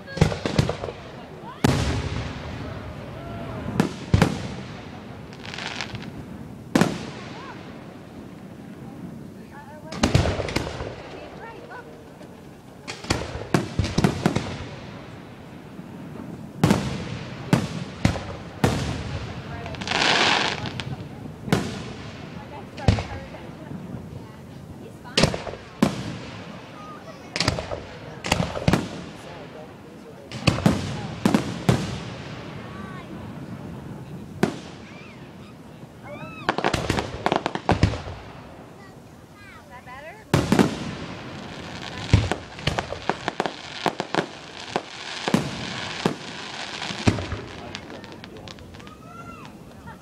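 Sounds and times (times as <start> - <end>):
rapid firework cracks: 0.0 - 23.9, 25.0 - 39.6, 40.2 - 50.0
firework bangs: 0.0 - 50.0
firework crackle: 0.0 - 50.0
firework shells bursting: 40.3 - 49.9.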